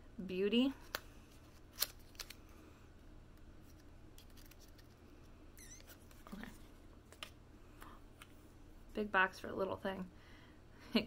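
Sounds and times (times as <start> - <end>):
short squeak: 5.6 - 6.0.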